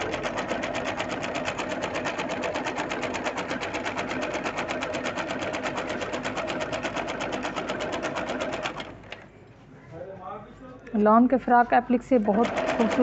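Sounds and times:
sewing machine running: 0.0 - 9.2, 12.2 - 13.0.

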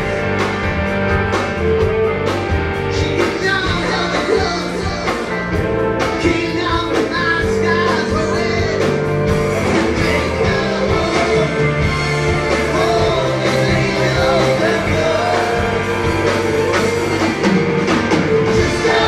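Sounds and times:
live rock band: 0.0 - 19.0
man singing: 2.9 - 9.0, 9.7 - 17.3, 18.4 - 19.0.

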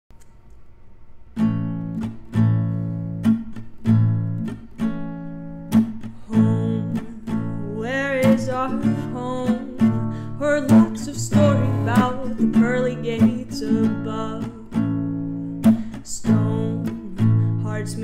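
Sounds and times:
acoustic guitar strumming: 1.4 - 18.0
person singing: 6.2 - 14.8, 16.0 - 18.0.

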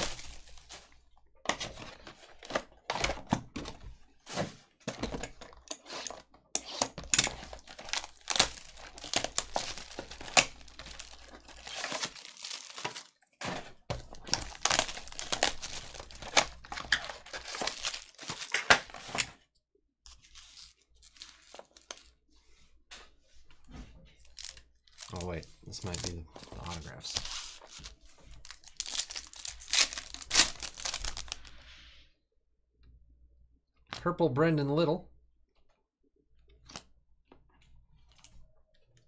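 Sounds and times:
shrink wrap crinkling and tearing: 0.0 - 3.3, 5.0 - 13.3, 13.9 - 19.4, 20.1 - 22.2, 24.2 - 31.6
cardboard and foil packs rustling: 0.0 - 19.4, 20.1 - 22.2, 24.2 - 31.6.

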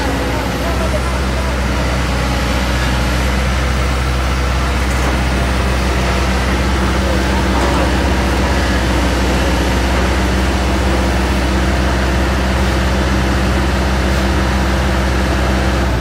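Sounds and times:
truck diesel engine running: 0.0 - 16.0.

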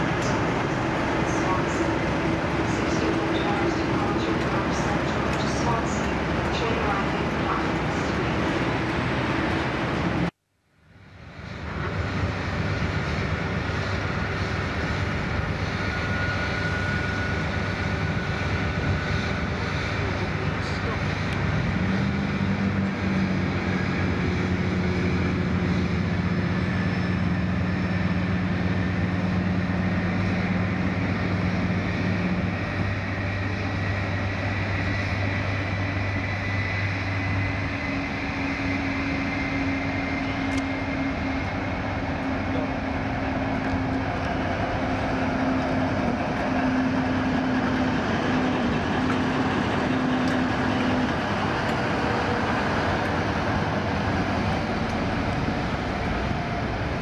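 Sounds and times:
diesel locomotive engine hum: 0.0 - 57.0
train running noise: 0.0 - 57.0.

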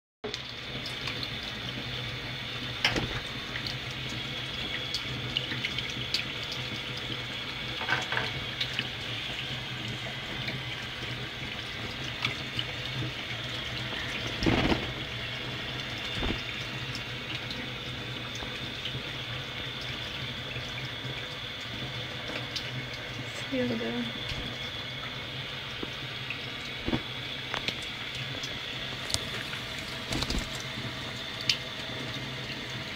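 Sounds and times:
tap running into metal sink: 2.8 - 3.7, 7.8 - 8.8.

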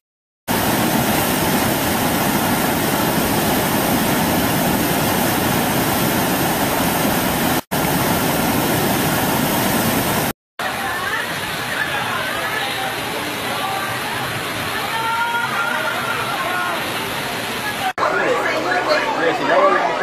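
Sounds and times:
river torrent rushing: 0.5 - 20.0.

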